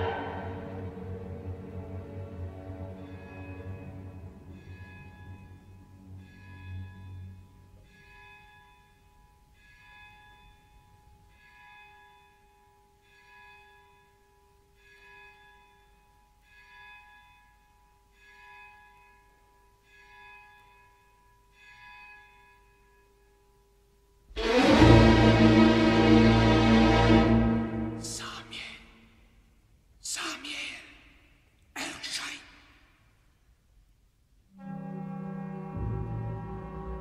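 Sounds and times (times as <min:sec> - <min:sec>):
soft orchestral music: 0:00.0 - 0:07.8, 0:24.3 - 0:28.8, 0:34.5 - 0:37.0.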